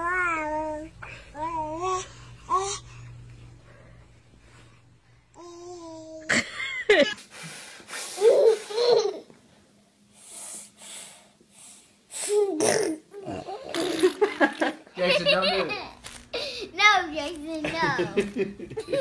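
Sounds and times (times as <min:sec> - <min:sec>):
baby laughing: 0:08.1 - 0:09.3.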